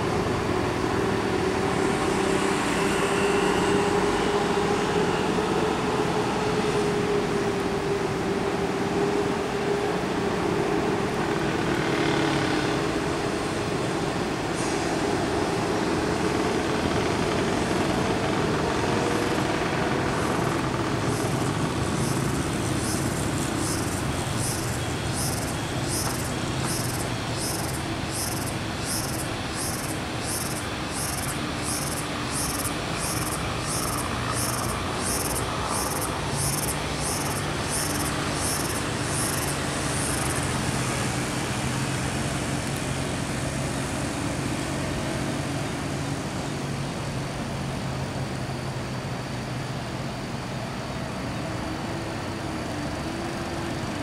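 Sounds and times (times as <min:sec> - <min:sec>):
bus diesel engine running: 0:13.0 - 0:50.0
high-pitched pulsing: 0:21.1 - 0:40.3.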